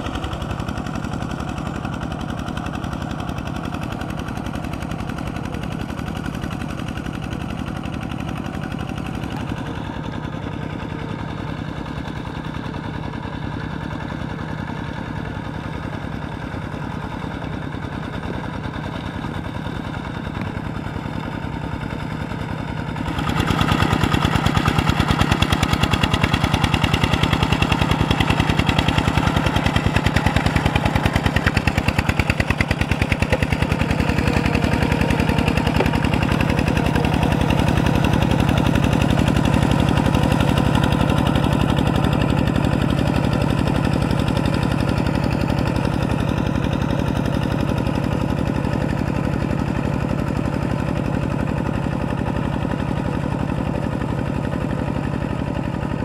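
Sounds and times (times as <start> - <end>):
diesel engine chugging: 0.0 - 56.0.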